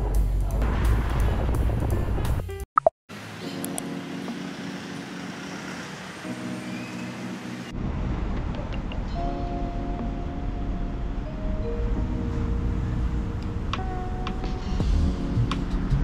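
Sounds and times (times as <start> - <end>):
city street traffic hum: 3.1 - 16.0
low traffic rumble: 4.2 - 16.0.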